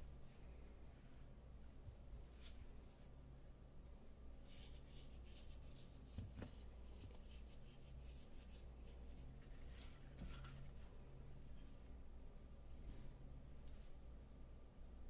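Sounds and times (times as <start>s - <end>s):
faint scratchy rustling: 4.3s - 14.2s.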